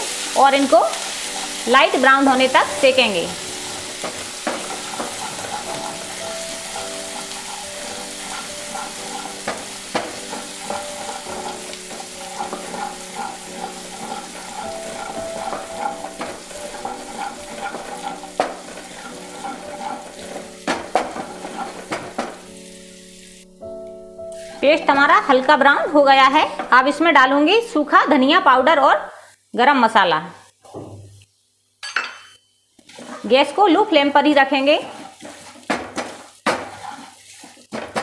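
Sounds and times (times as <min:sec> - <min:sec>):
paste sizzling in hot oil: 0:00.0 - 0:23.6, 0:24.2 - 0:26.5, 0:32.8 - 0:38.0
spatula scraping and tapping pan: 0:00.6 - 0:22.7, 0:32.8 - 0:33.4, 0:34.3 - 0:38.0.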